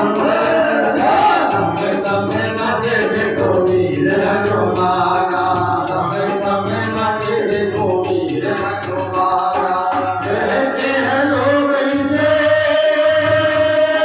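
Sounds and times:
hand percussion fast beat: 0.0s - 14.0s
men singing devotional song: 0.0s - 14.0s.

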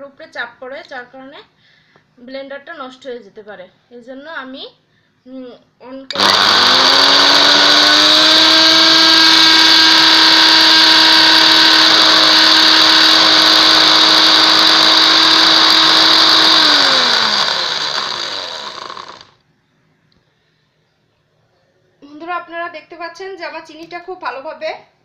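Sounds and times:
blender motor whining: 6.1s - 19.4s.

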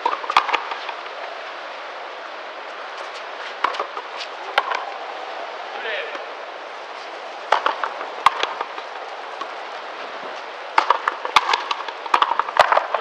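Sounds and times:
rubber ball struck with racquets: 7.5s - 8.7s, 10.8s - 13.0s.

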